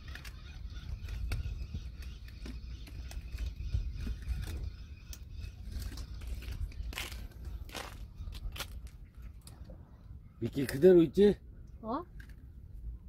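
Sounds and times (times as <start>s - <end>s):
wind buffeting microphone: 0.0s - 9.9s.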